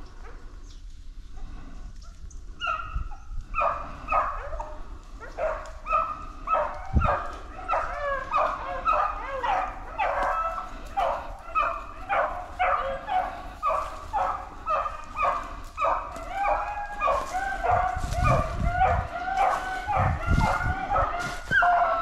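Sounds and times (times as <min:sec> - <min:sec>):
beagles baying: 0:02.6 - 0:22.0.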